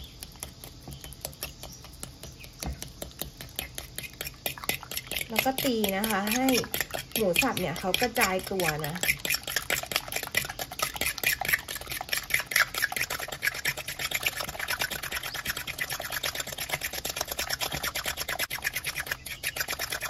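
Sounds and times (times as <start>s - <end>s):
wet slapping of egg: 0.0s - 20.0s
fork clicking against glass bowl: 0.2s - 15.5s.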